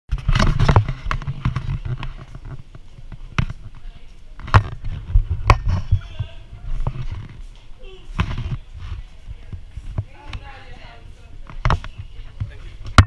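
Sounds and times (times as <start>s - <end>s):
camera handling knocks and bumps: 0.2s - 3.7s.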